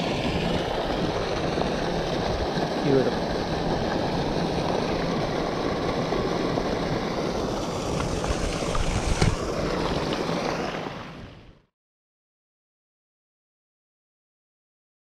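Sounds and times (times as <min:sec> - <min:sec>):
fish splashing into pond: 0:00.0 - 0:11.4
fountain water splashing: 0:00.0 - 0:11.5.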